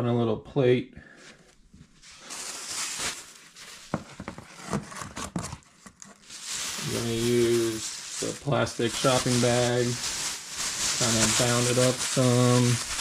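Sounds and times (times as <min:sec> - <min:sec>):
soft rustle: 0:01.2 - 0:13.0.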